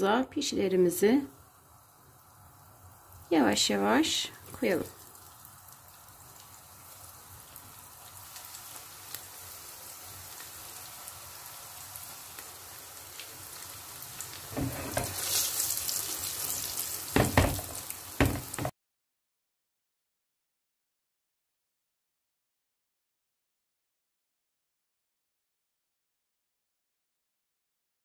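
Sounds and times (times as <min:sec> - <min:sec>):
dough sizzling in hot oil: 0:00.3 - 0:18.7.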